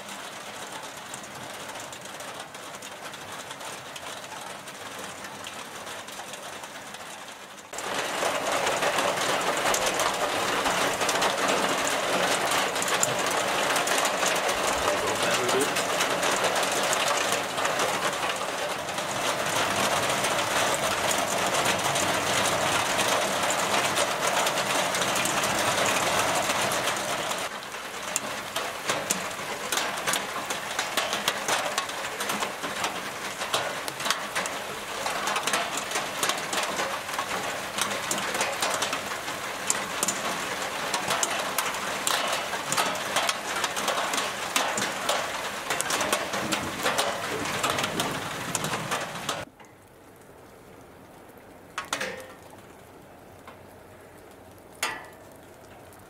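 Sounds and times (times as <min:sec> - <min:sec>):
heavy rain pouring: 0:00.0 - 0:56.0.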